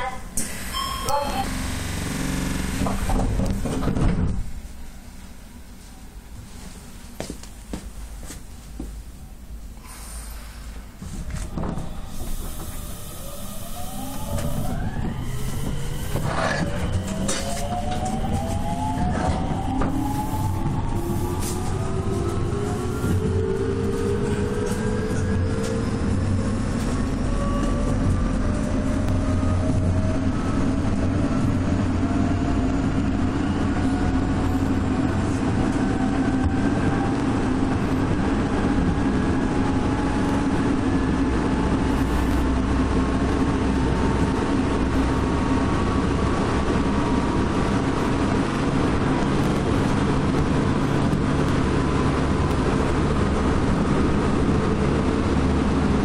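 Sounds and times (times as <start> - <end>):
wheels rumbling on rail: 0.0 - 56.0
traction motor whine: 0.7 - 3.5.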